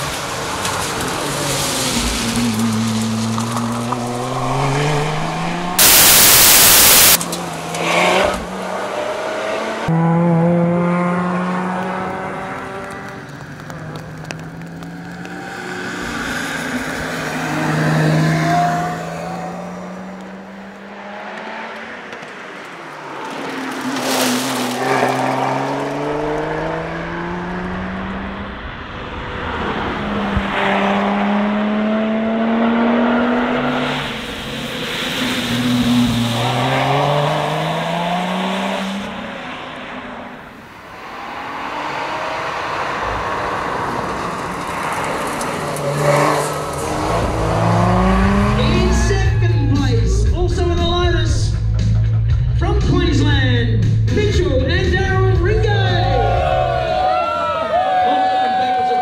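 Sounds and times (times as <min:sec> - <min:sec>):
car engine accelerating: 0:00.0 - 0:49.4
loud rushing noise: 0:01.5 - 0:07.2.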